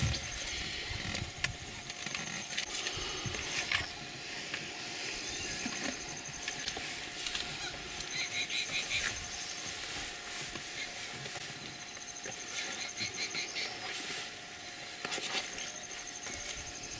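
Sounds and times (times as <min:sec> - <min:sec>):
wild dogs chirping: 0:07.3 - 0:09.7, 0:11.8 - 0:14.0.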